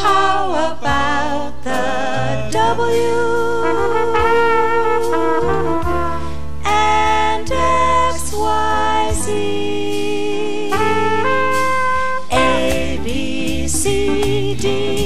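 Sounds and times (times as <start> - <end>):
voices singing: 0.0 - 5.7, 6.7 - 15.0
bass accompaniment: 0.0 - 15.0
brass instrument slow melody: 2.8 - 15.0.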